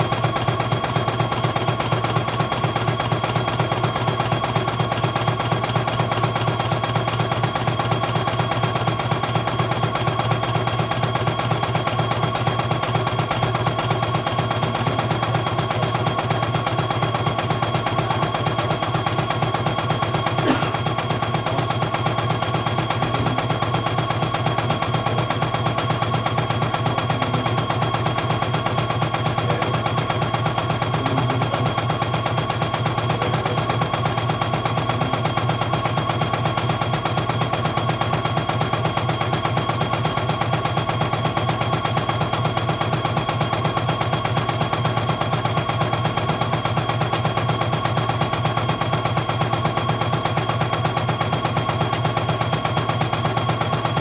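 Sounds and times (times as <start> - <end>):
machine hum: 7.6 - 37.5.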